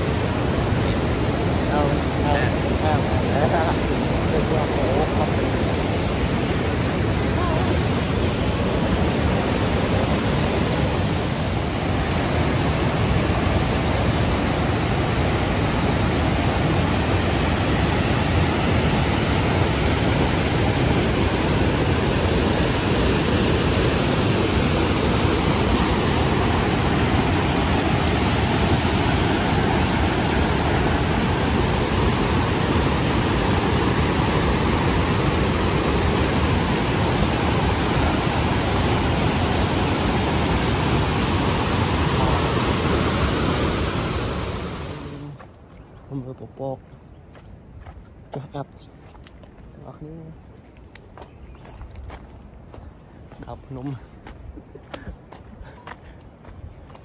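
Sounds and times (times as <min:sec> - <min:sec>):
waterfall rushing over rocks: 0:00.0 - 0:45.5.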